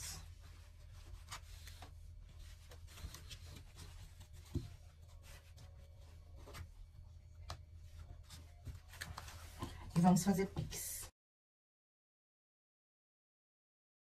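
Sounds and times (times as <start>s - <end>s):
knit fabric rustling: 0.0s - 11.1s.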